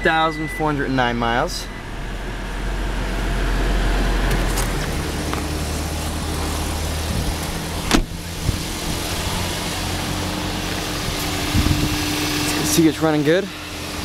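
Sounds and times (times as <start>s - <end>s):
car engine running: 0.0s - 14.0s
car door shutting: 7.2s - 8.7s.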